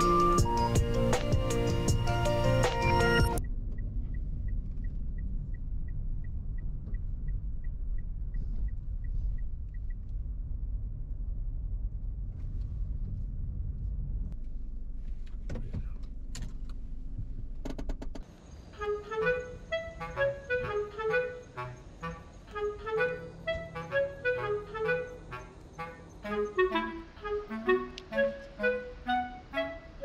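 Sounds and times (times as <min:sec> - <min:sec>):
turn signal ticking: 0:00.0 - 0:10.4
car road noise: 0:00.0 - 0:30.0.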